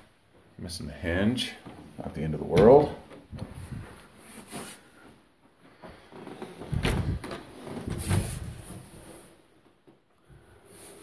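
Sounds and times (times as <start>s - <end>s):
closet door opening and shutting: 2.4s - 4.0s, 5.9s - 9.2s
heavy thuds: 6.6s - 8.9s.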